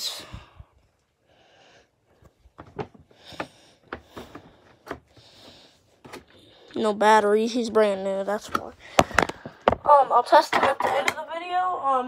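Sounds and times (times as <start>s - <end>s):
soft breath: 0.0s - 2.3s, 3.1s - 6.8s
hand tapping plastic packaging: 8.4s - 9.9s.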